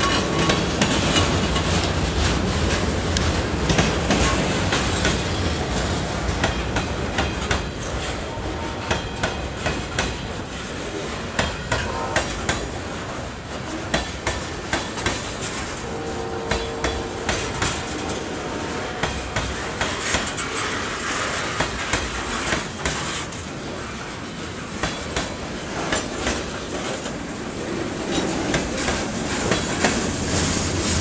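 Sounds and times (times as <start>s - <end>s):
freight train wheels rumbling on rail: 0.0s - 31.0s
wheels clacking over rail joints: 0.0s - 31.0s.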